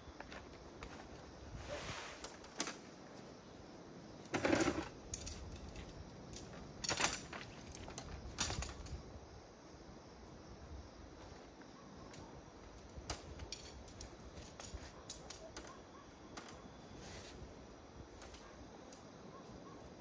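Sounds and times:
tent fabric rustling: 0.3 - 3.3.

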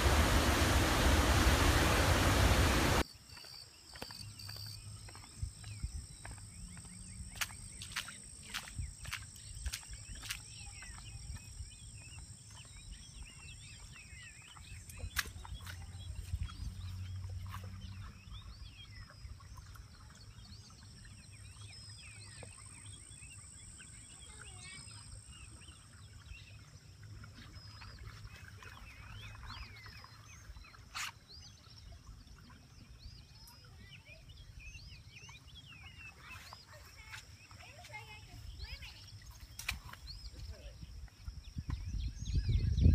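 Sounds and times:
birds chirping and singing: 28.4 - 42.9.

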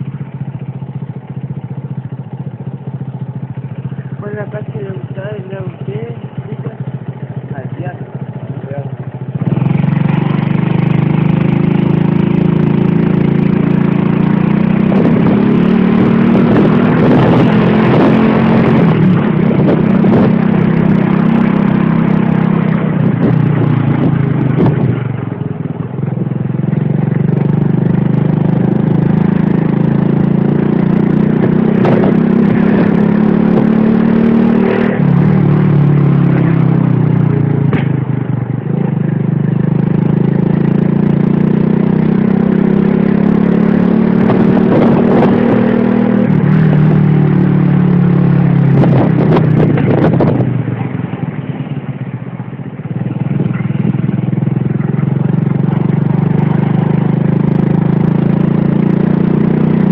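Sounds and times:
motorcycle engine running: 0.0 - 59.9
wind rush on microphone: 14.8 - 21.0, 22.9 - 25.2, 31.4 - 36.4, 44.0 - 47.5, 48.4 - 50.9.

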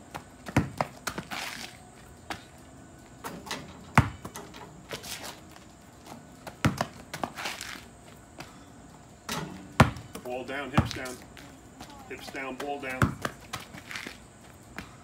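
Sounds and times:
basketball bouncing on asphalt: 0.0 - 1.7, 3.9 - 4.4, 6.1 - 8.6, 9.6 - 15.0.

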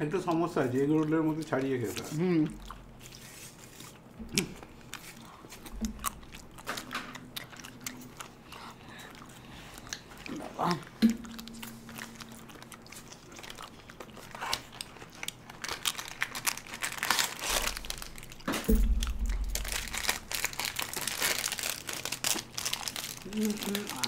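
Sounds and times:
wrapper crinkling: 10.9 - 24.0.

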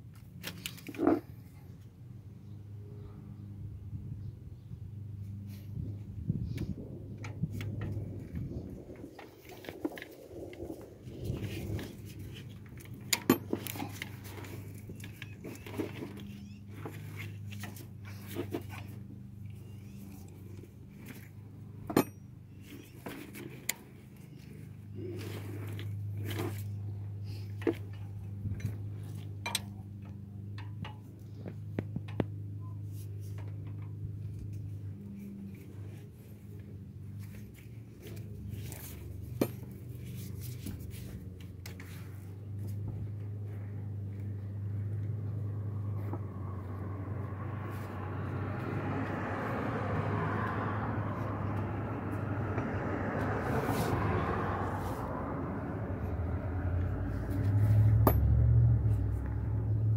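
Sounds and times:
low hum: 1.2 - 59.9
tools clinking on engine parts: 13.0 - 16.2, 21.9 - 23.4, 29.4 - 29.8, 58.0 - 58.4.

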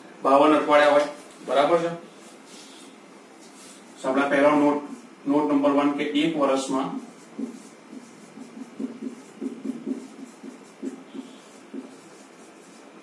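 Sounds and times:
marker squeaking on whiteboard: 6.9 - 13.0.

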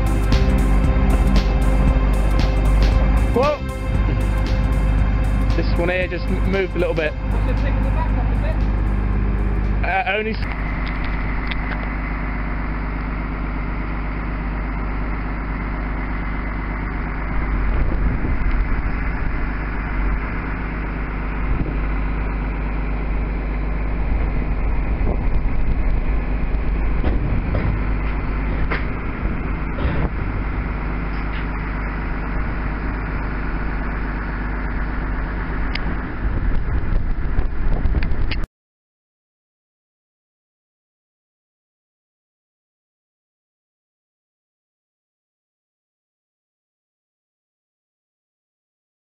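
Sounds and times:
diesel engine running: 0.0 - 38.5.

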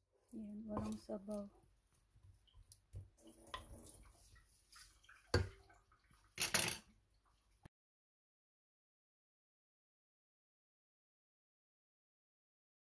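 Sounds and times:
spatula stirring in a pot: 0.7 - 6.4.

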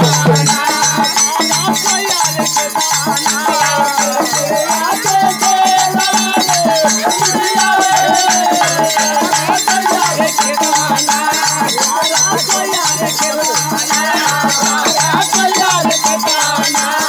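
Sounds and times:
hand drum beat: 0.0 - 17.0
jingling rattle: 0.0 - 17.0.

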